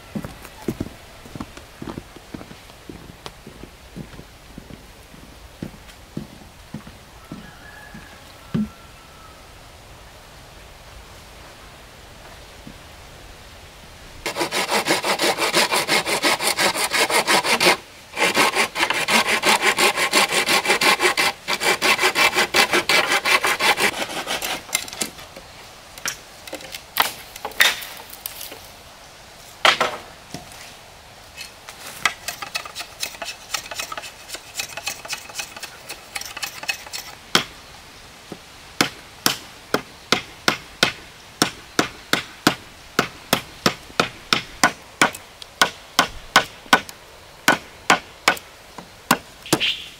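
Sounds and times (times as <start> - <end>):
hand saw cutting wood: 14.2 - 25.2, 31.4 - 37.2
knocks and strikes on wood: 38.8 - 46.9.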